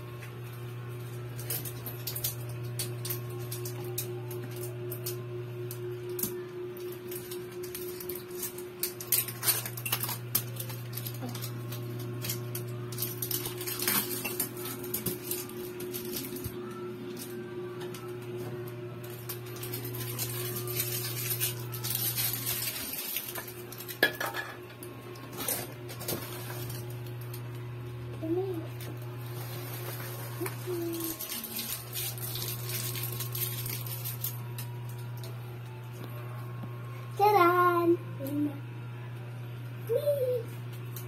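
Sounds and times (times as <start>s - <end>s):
steady low hum: 0.0s - 41.0s
plastic wrapping rustling: 6.8s - 17.4s, 19.0s - 24.1s, 25.2s - 27.4s, 28.2s - 35.3s.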